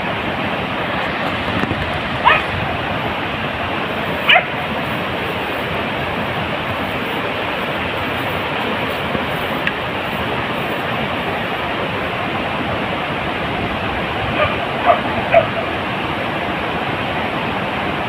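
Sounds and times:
steady rushing noise: 0:00.0 - 0:18.0
dog yelping: 0:02.2 - 0:02.6, 0:04.2 - 0:04.6, 0:14.3 - 0:15.7.

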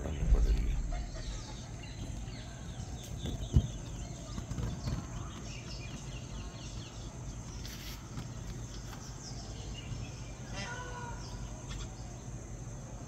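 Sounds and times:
loud dull thump: 0:00.0 - 0:01.6
steady low rumble: 0:00.0 - 0:03.9.

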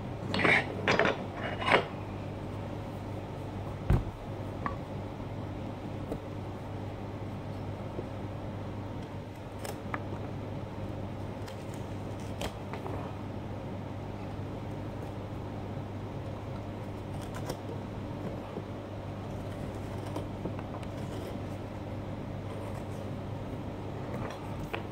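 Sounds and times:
steady low hum: 0:00.0 - 0:24.9
carving tool scraping pumpkin: 0:19.3 - 0:21.6, 0:22.5 - 0:23.1.

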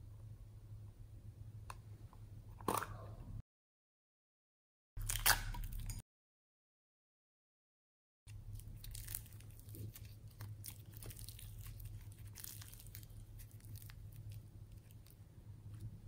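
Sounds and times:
steady low hum: 0:00.0 - 0:03.4, 0:08.3 - 0:16.0
slime clicking and crackling: 0:08.4 - 0:15.2.

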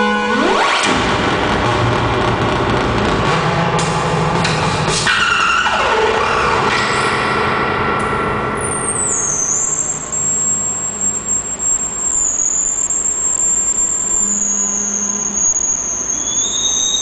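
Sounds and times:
high electronic whistling tone: 0:08.6 - 0:17.0.

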